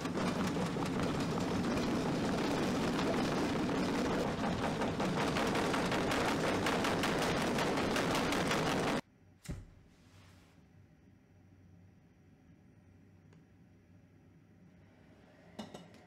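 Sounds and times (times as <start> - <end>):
loud crackling rumble: 0.0 - 9.0.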